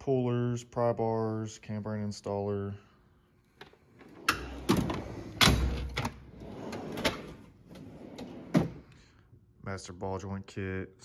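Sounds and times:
steel drawers sliding on runners: 3.8s - 8.8s
drawer knocks and clunks: 4.3s - 8.8s.

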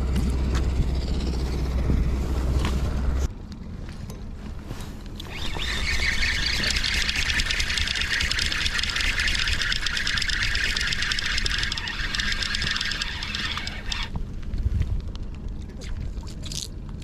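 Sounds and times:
fishing reel spinning: 5.2s - 14.2s.

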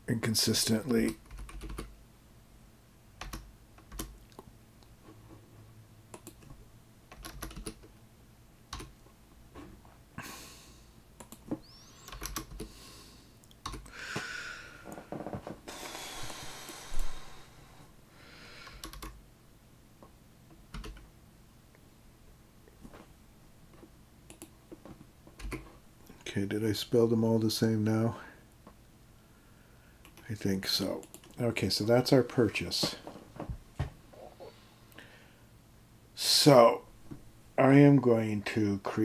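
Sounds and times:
computer keyboard keystrokes: 1.0s - 1.9s, 3.2s - 4.3s, 6.1s - 7.9s, 8.7s - 9.0s, 12.1s - 12.7s, 13.6s - 13.9s, 18.7s - 19.2s, 20.7s - 21.0s, 24.3s - 24.5s, 25.4s - 25.6s
hiss-like noise: 15.6s - 18.8s.

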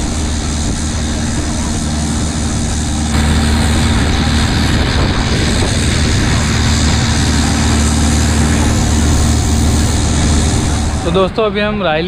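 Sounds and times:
boat engine drone: 0.0s - 12.0s
wind: 0.0s - 12.0s.

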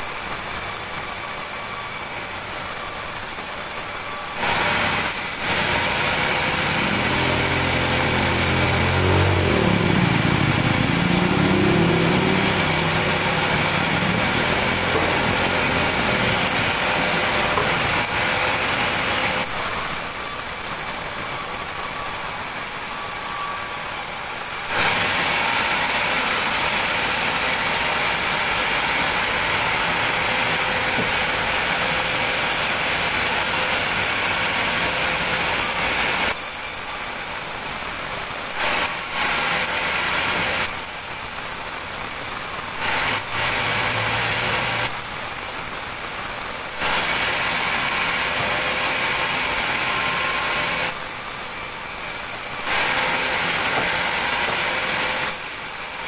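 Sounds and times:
high machine whine: 0.0s - 56.0s
sawmill machinery running: 0.0s - 56.0s
low engine note: 5.4s - 19.9s.

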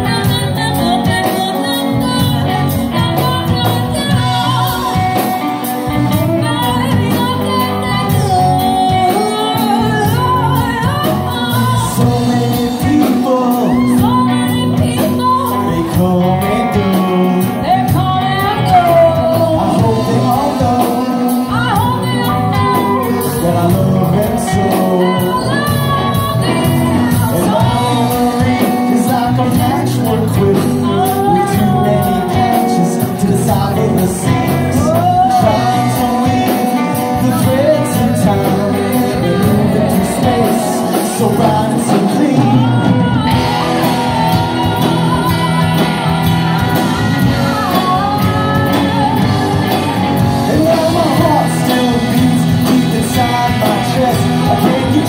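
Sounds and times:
live rock band playing: 0.0s - 55.0s
person singing: 0.0s - 55.0s.

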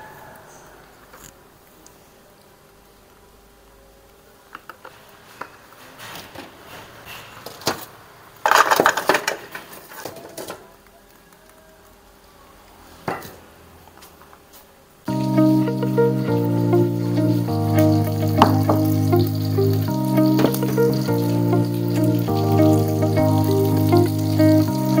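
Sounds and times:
wok and utensils clattering: 4.9s - 10.6s.

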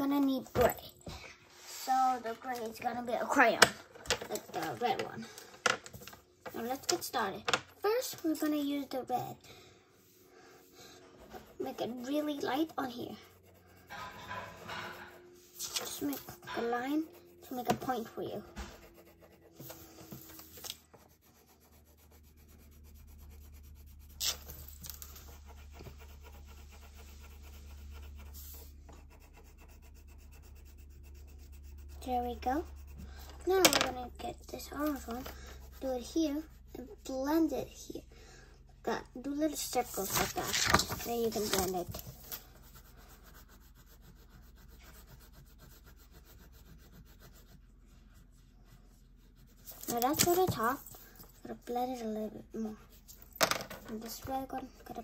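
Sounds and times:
crayon rubbing on paper: 10.7s - 37.9s, 39.3s - 50.8s.

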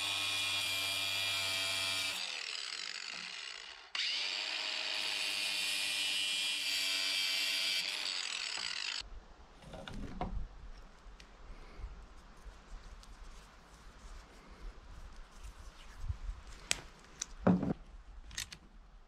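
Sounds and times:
angle grinder cutting steel: 0.0s - 9.0s
rustling handling noise: 12.0s - 17.7s.

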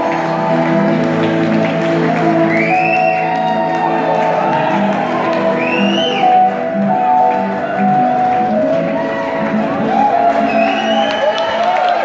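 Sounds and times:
crowd whooping: 2.1s - 12.0s.

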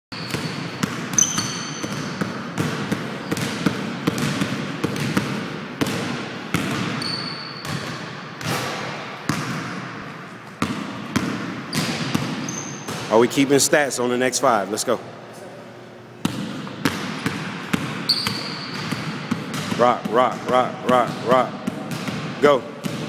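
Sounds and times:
sneaker squeaks: 0.1s - 2.4s, 3.2s - 3.6s, 6.6s - 8.0s, 11.7s - 13.1s, 18.0s - 19.2s
basketball bouncing on hardwood: 0.2s - 8.0s.

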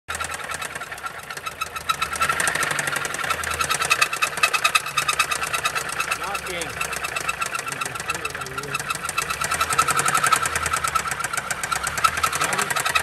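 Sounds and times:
car engine knocking: 0.1s - 13.0s.

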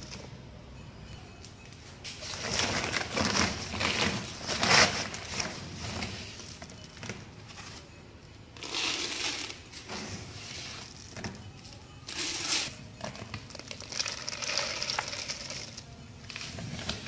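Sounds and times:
plastic sack rustling: 2.2s - 7.9s, 12.1s - 17.0s.

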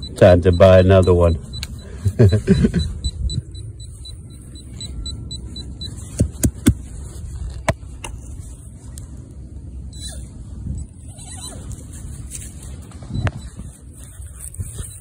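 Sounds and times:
metal detector beeping: 0.0s - 7.7s, 12.4s - 15.0s
wind rumble on microphone: 2.2s - 15.0s.

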